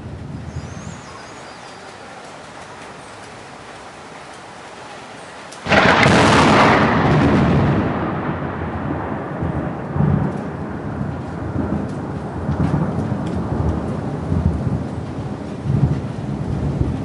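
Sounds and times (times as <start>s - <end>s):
thunder crack and rumble: 5.6s - 17.0s.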